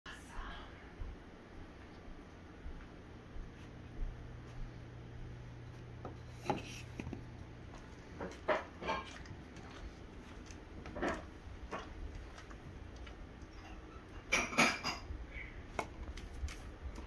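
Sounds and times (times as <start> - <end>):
cardboard tube taps and scrapes: 6.4 - 7.2.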